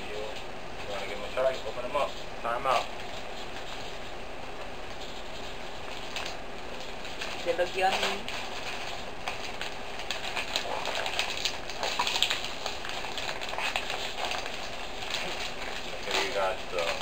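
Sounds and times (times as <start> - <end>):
plastic packets crinkling: 4.8 - 17.0.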